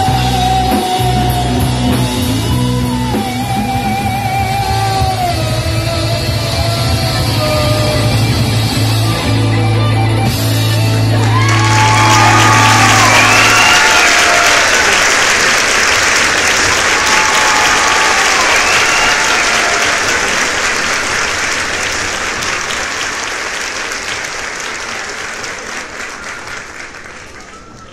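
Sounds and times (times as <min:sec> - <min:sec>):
rock band held note: 0:00.0 - 0:15.6
audience applauding and cheering: 0:10.8 - 0:27.9
people shouting: 0:16.9 - 0:20.7.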